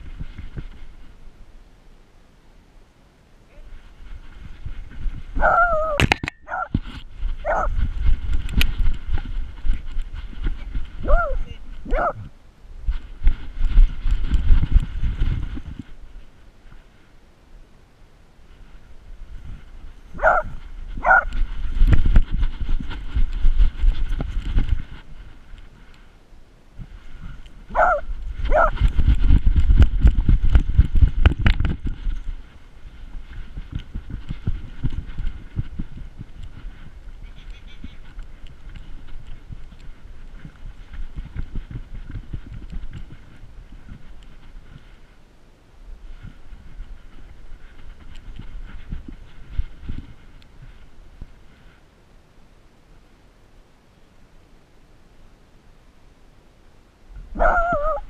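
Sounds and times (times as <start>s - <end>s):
dog barking: 5.4s - 6.7s, 7.4s - 7.7s, 11.1s - 12.2s, 20.2s - 21.3s, 27.8s - 28.8s, 57.4s - 58.0s.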